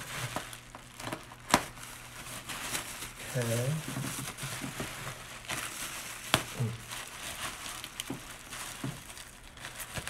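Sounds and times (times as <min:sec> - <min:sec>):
bubble wrap crinkling: 0:00.0 - 0:10.0.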